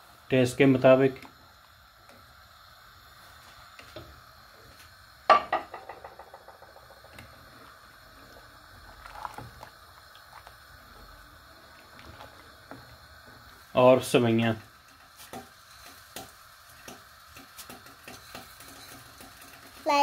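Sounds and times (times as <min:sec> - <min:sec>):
spoon stirring in steel pot: 0:15.0 - 0:19.6.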